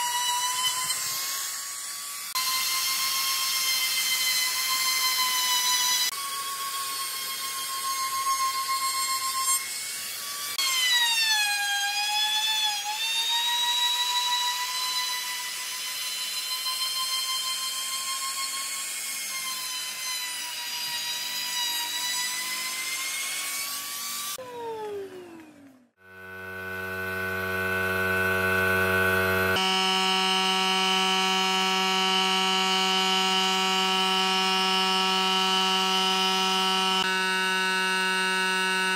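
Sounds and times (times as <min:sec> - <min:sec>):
trim router whining: 0:09.2 - 0:38.9
steady electric buzz: 0:26.0 - 0:38.9.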